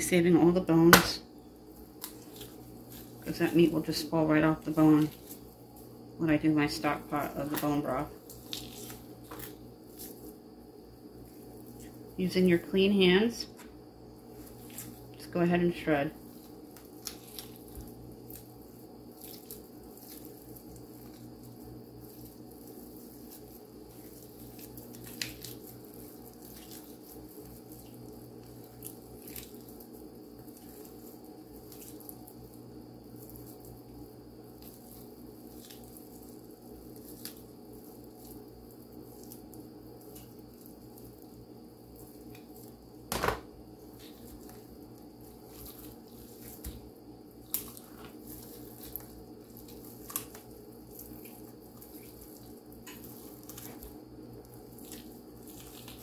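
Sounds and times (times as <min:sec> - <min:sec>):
steady low hum: 0:00.0 - 0:56.0
meat tearing and squishing: 0:01.7 - 0:03.8, 0:08.2 - 0:10.4, 0:14.3 - 0:15.1, 0:16.2 - 0:43.2, 0:43.8 - 0:56.0.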